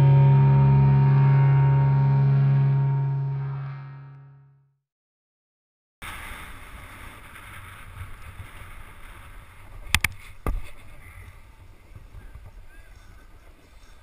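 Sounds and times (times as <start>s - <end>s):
snowboard sliding over snow: 6.0s - 14.0s.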